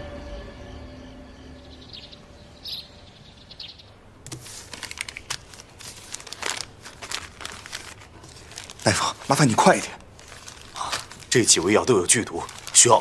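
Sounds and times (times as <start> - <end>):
faint bird chirps: 1.4 - 4.0
wrapping paper rustling and crinkling: 4.3 - 13.0.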